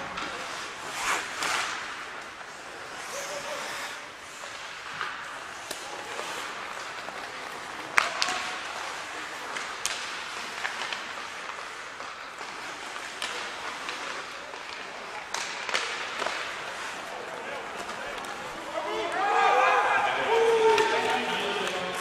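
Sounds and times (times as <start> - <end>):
hockey stick cracking puck: 4.3 - 19.3
puck hitting boards: 4.4 - 19.8.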